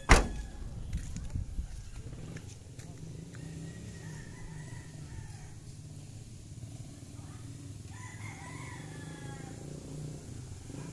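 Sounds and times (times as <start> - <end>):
rooster crowing: 3.2 - 5.8, 7.9 - 9.8.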